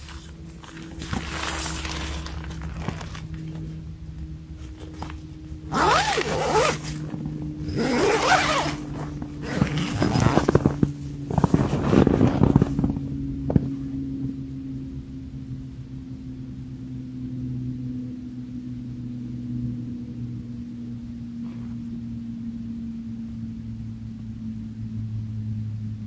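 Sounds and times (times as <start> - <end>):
tent zipper pulled shut: 0.0 - 3.6, 4.7 - 12.9
fabric rustling: 0.0 - 3.8, 4.6 - 12.7
rapid zipper clicks: 5.7 - 12.8.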